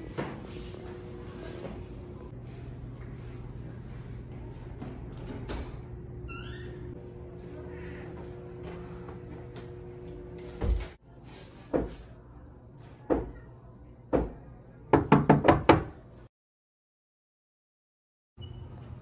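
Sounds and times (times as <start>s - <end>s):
knocking on wooden door: 14.1s - 15.9s.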